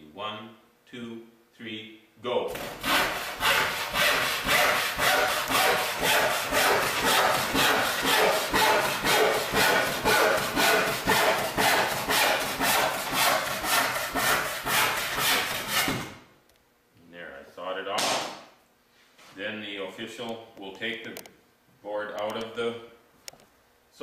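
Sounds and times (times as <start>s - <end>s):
handsaw cutting wood: 2.5s - 16.1s.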